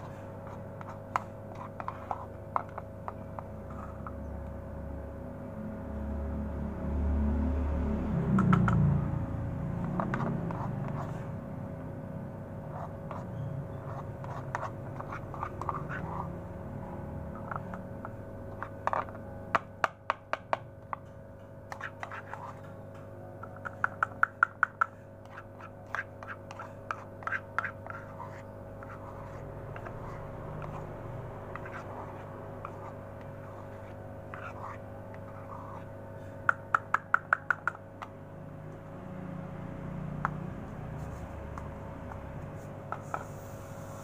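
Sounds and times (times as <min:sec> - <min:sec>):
metal spoon scraping plastic bowl: 0:00.0 - 0:04.2, 0:12.7 - 0:16.4, 0:17.3 - 0:19.3, 0:21.7 - 0:22.8, 0:23.4 - 0:36.0.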